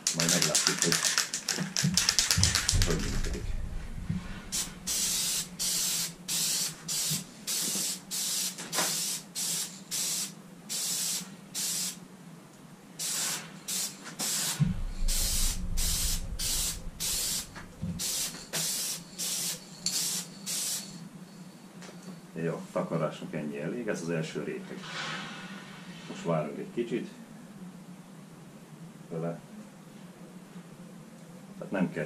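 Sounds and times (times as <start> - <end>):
aerosol spray bursts: 0.0 - 3.4, 4.5 - 12.0, 13.0 - 21.0.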